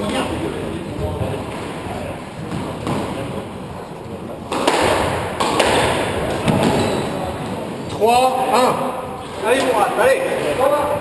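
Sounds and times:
squash ball smacks: 4.5 - 6.9.

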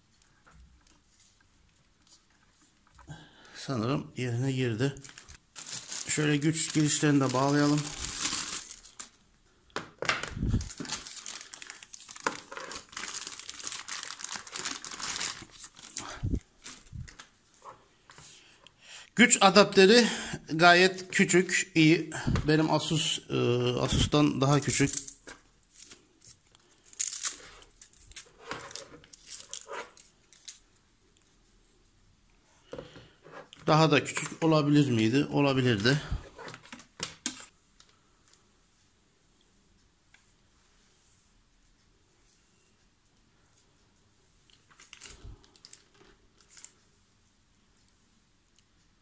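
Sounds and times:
plastic bag crinkling: 4.8 - 9.2, 10.4 - 17.4, 24.6 - 30.6, 44.7 - 46.8
cord rustling and scraping: 5.0 - 9.2, 10.3 - 18.3, 24.7 - 30.6, 36.1 - 38.4, 44.5 - 46.9.

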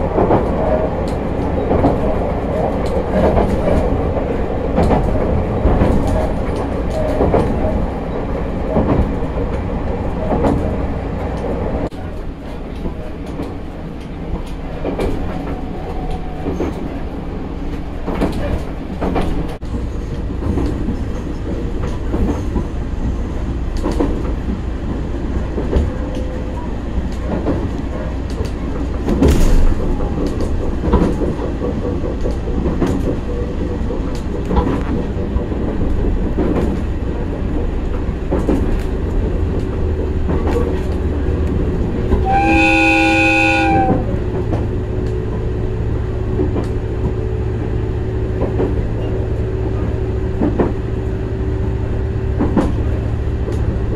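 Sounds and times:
train rumbling on track: 0.0 - 53.9
wheels clicking over rail joints: 0.0 - 53.9
train horn: 42.2 - 44.2.

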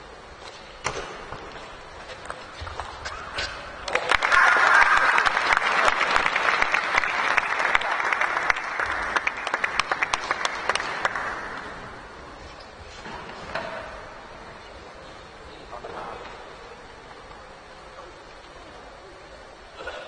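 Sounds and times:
audience applause: 3.8 - 12.1.

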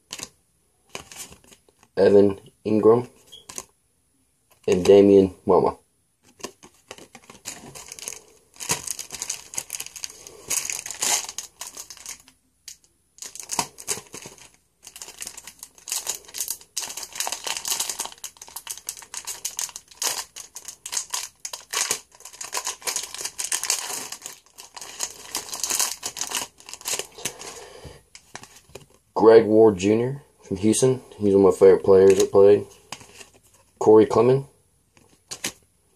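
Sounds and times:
foil wrapper crinkling: 6.3 - 27.6.

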